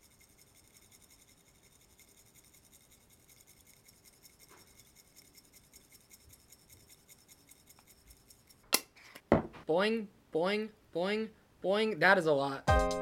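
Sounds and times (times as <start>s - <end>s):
spice shaker rasping: 0.0s - 8.9s.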